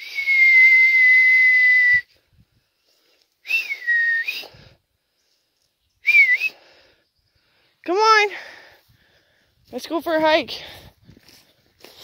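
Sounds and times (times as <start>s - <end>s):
person whistling: 0.0s - 2.1s, 3.4s - 4.6s, 6.0s - 6.6s.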